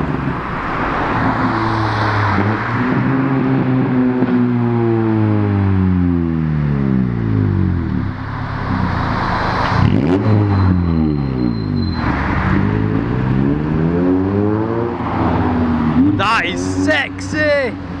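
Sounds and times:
cars accelerating past: 0.0s - 5.8s, 7.2s - 17.3s.

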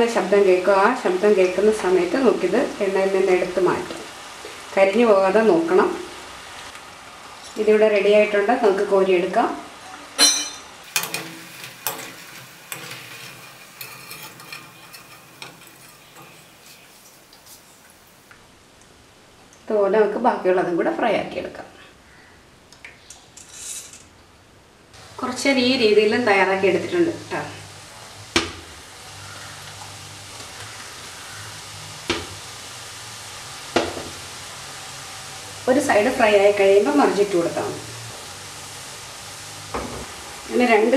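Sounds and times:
hot oil sizzling: 0.0s - 18.7s, 25.0s - 40.9s
metal spoon scraping a wok: 10.2s - 18.2s.

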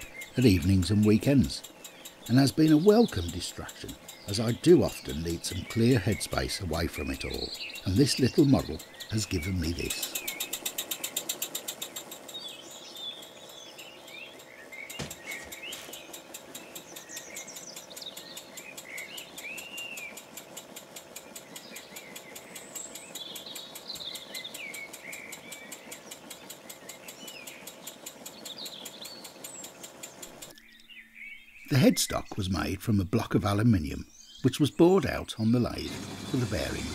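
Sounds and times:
small engine exhaust puffs: 0.0s - 30.8s, 35.6s - 36.9s
high chirping squeaks: 0.0s - 30.9s.

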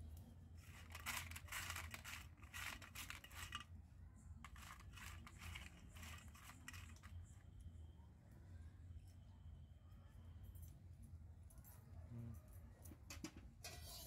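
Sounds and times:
crab shells scraping on metal: 0.6s - 3.7s, 13.6s - 14.0s.

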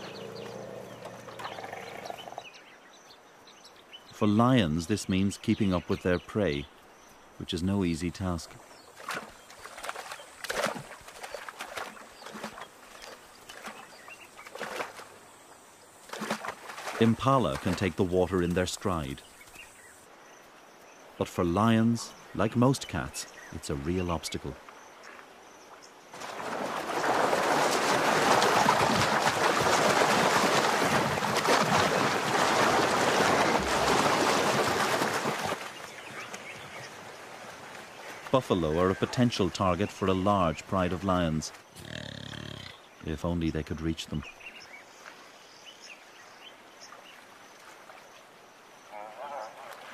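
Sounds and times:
animals splashing through water: 0.0s - 2.4s, 8.0s - 20.0s, 26.1s - 42.6s, 46.4s - 49.9s.

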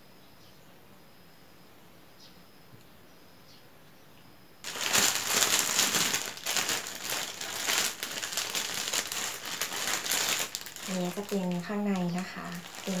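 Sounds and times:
plastic bag crinkling: 4.6s - 13.0s.

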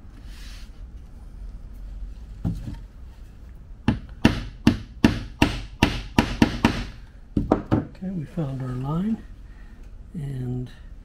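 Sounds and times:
hammer tapping a nail: 3.9s - 7.8s.

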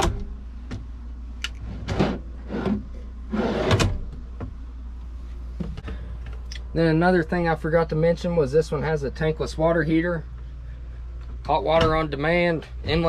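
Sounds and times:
drawers sliding on runners: 1.6s - 4.0s.

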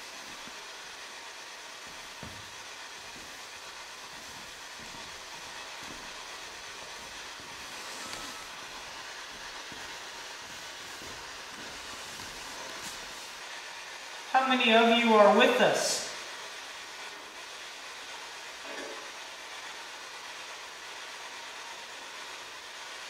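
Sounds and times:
radio static hissing: 0.0s - 16.6s.

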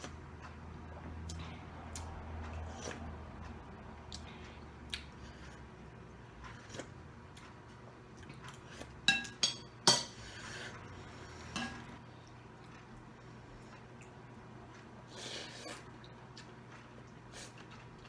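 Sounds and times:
soft clicks of eating: 0.0s - 5.2s, 12.0s - 15.0s, 15.8s - 18.0s
spoon clinking against bowl: 9.1s - 10.1s.

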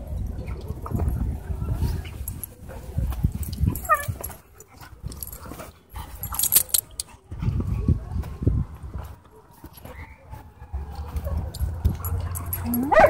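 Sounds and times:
dogs scuffling on dirt: 0.1s - 13.0s
dog whining: 12.4s - 13.0s.

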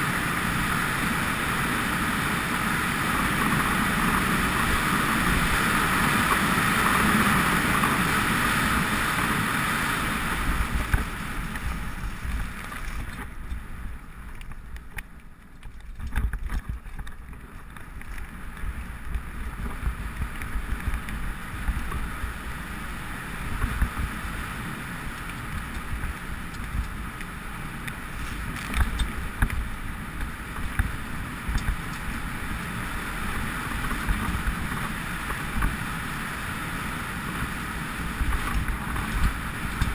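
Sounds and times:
wind and tyre noise: 0.0s - 39.9s
bike knocks and rattles: 10.4s - 22.2s, 25.2s - 32.4s.

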